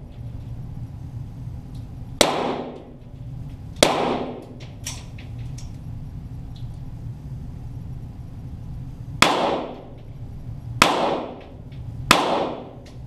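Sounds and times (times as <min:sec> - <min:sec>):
pistol shots: 0:02.2 - 0:02.9, 0:03.8 - 0:04.6, 0:09.2 - 0:09.9, 0:10.8 - 0:12.8.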